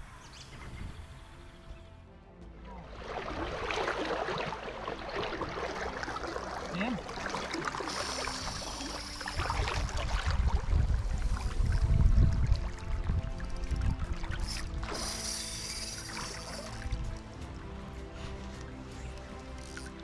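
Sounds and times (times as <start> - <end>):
river water rushing: 2.8 - 10.8.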